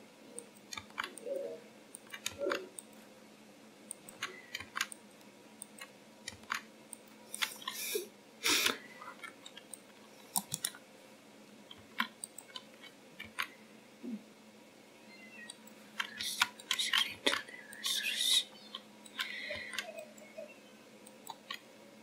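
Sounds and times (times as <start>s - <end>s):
keyboard and mouse clicking: 0.4s - 1.3s, 1.9s - 3.0s, 3.9s - 5.0s, 5.6s - 7.8s, 8.6s - 10.8s, 11.7s - 13.5s, 15.4s - 18.0s, 18.6s - 20.3s, 21.0s - 21.7s.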